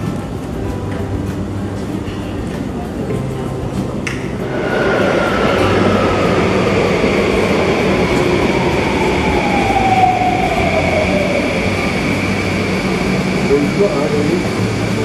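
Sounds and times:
train motor whine: 0:04.4 - 0:15.0.

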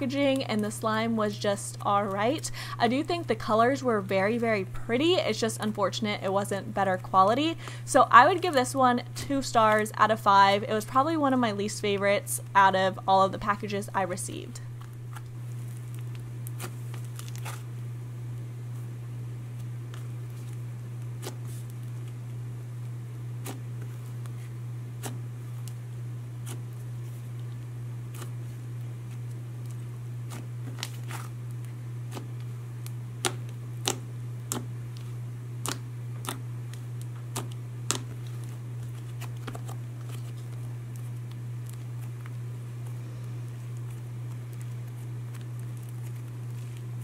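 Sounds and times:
steady low hum: 0:00.0 - 0:47.0
slime sticky clicks and pops: 0:32.8 - 0:34.6, 0:35.6 - 0:36.4.

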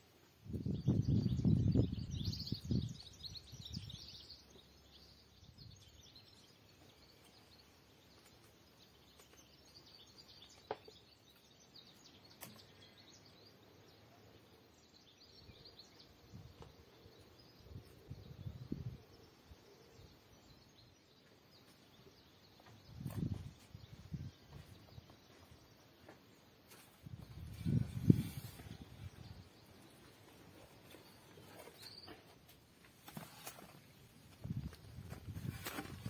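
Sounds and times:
small birds chirping: 0:00.0 - 0:36.0.

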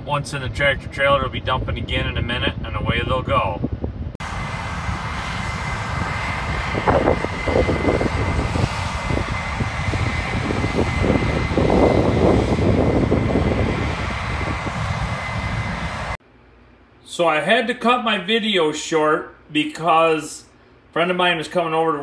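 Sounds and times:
harvester engine drone: 0:04.2 - 0:16.2
high whine: 0:04.2 - 0:16.2.

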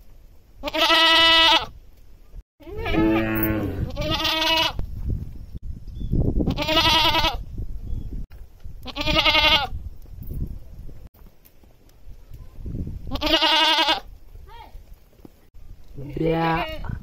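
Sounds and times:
goat bleating: 0:00.6 - 0:01.7, 0:02.6 - 0:04.8, 0:06.5 - 0:07.4, 0:08.8 - 0:09.7, 0:13.1 - 0:14.1, 0:16.1 - 0:17.0.

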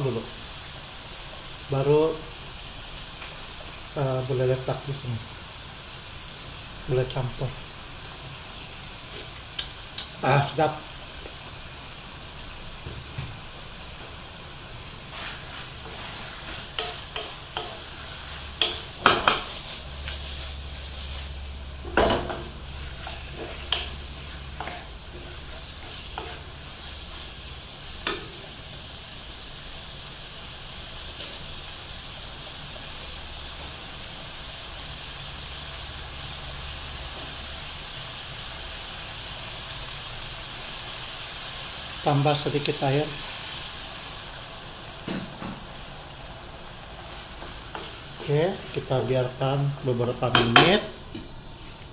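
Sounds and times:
food sizzling in a wok: 0:00.0 - 0:51.9
wooden spatula scraping a pan: 0:15.1 - 0:27.4, 0:47.0 - 0:51.9.

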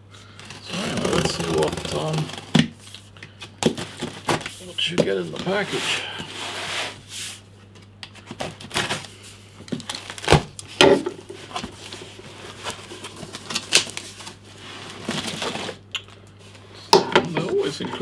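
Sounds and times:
cardboard flaps clicking and rustling: 0:00.4 - 0:02.8, 0:03.6 - 0:05.6, 0:08.1 - 0:15.8
cardboard box scraping and rustling: 0:00.6 - 0:02.5.

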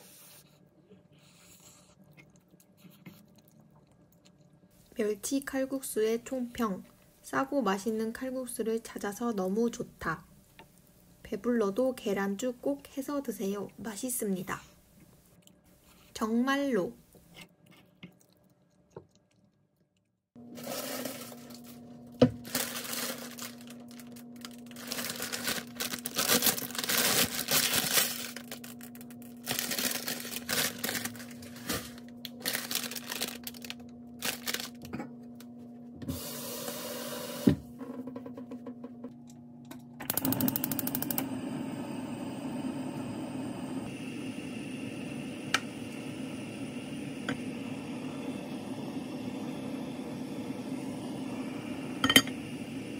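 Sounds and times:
low steady hum: 0:20.4 - 0:36.2, 0:37.6 - 0:52.9
plastic packet crinkling and tearing: 0:22.4 - 0:34.8
gas stove burner rushing: 0:36.0 - 0:38.0, 0:40.0 - 0:52.9.

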